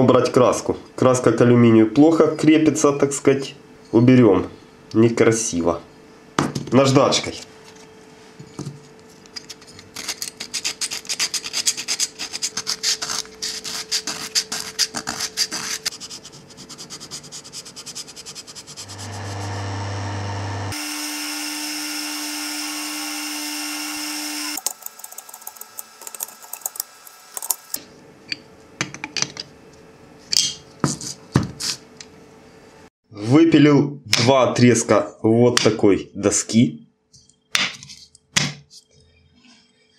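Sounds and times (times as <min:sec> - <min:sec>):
sandpaper scratching metal: 0:09.9 - 0:19.6
motor humming: 0:18.8 - 0:27.8.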